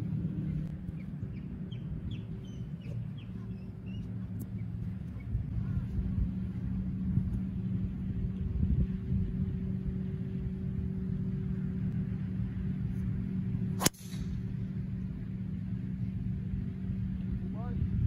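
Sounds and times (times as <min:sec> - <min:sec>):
low engine-like hum: 0:00.0 - 0:18.0
golf club striking ball: 0:13.7 - 0:14.5.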